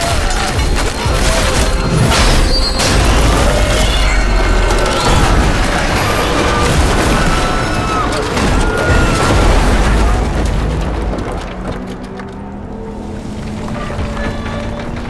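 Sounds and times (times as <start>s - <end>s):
people screaming: 0.0s - 11.0s, 13.6s - 15.0s
dramatic music: 0.0s - 15.0s
falling debris: 0.0s - 15.0s
heavy rumble of wreckage: 0.0s - 15.0s.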